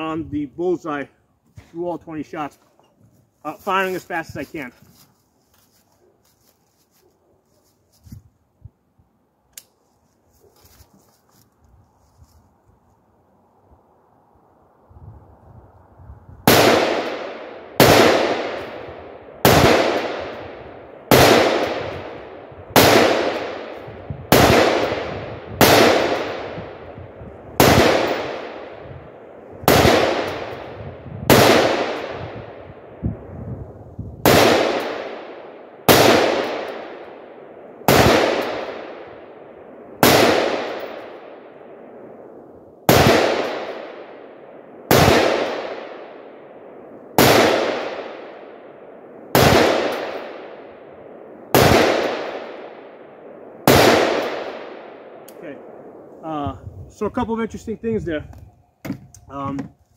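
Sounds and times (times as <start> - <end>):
rifle shots: 16.4 - 32.9, 34.2 - 41.9, 42.9 - 56.0.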